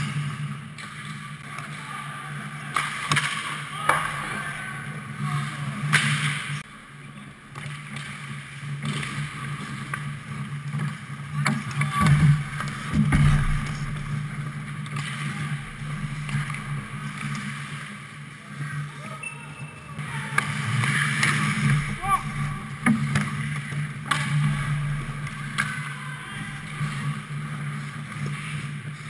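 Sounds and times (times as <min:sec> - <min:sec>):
sticks and puck clacking: 0:02.7 - 0:04.2, 0:07.5 - 0:18.0, 0:20.4 - 0:28.9
steady low hum: 0:12.0 - 0:14.9, 0:15.5 - 0:18.5.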